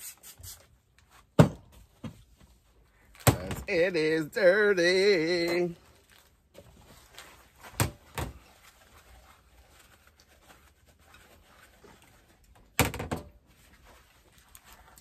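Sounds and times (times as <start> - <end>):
paper towel rubbing bowl: 8.4 - 12.5.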